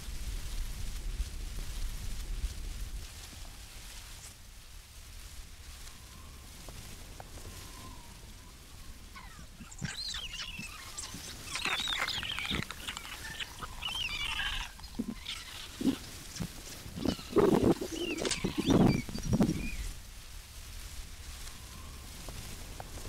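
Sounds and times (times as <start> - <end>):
stork nestlings calling: 7.6 - 19.8.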